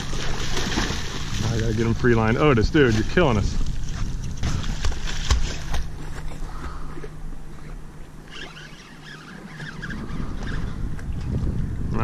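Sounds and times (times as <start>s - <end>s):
dog swimming and splashing: 0.0s - 2.0s, 2.8s - 7.8s
steady low hum: 0.0s - 12.0s.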